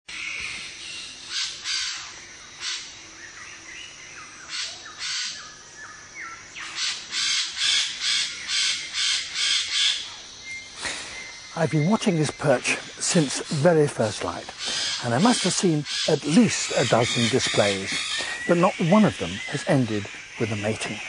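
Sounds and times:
harsh crow-like bird calls: 0.1s - 2.9s, 4.4s - 5.6s, 6.6s - 10.2s, 14.4s - 21.0s.

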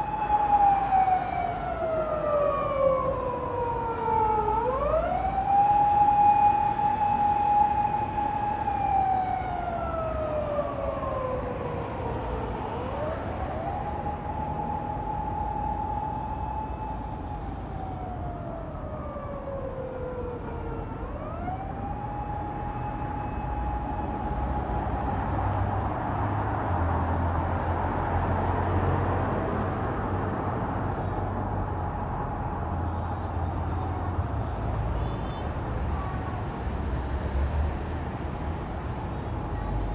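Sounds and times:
siren wailing: 0.0s - 25.8s
heavy road traffic rumble: 0.0s - 39.9s.

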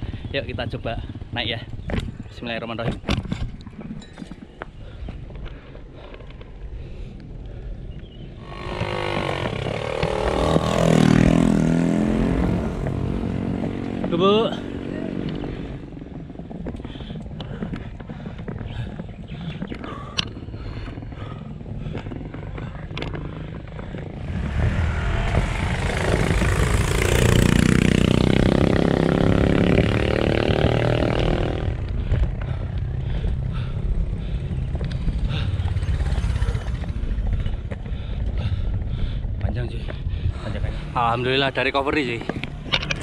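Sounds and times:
motorcycle engine passing: 8.3s - 16.6s, 23.2s - 39.2s.

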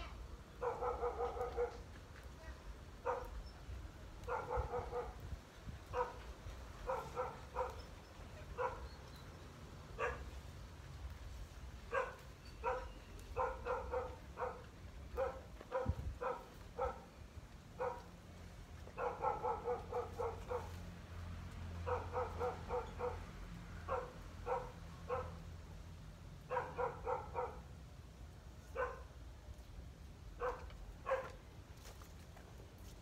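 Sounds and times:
dog barking: 0.6s - 1.8s, 3.0s - 3.4s, 4.2s - 5.2s, 5.9s - 6.2s, 6.8s - 7.8s, 8.6s - 9.0s, 10.0s - 10.3s, 11.9s - 17.1s, 17.8s - 18.1s, 18.9s - 20.8s, 21.8s - 25.4s, 26.5s - 27.7s, 28.7s - 29.1s, 30.4s - 31.4s.

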